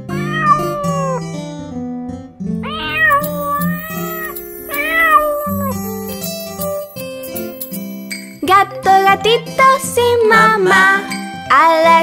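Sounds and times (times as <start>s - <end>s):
cartoon kitten meowing: 0.1s - 1.2s, 2.6s - 5.8s.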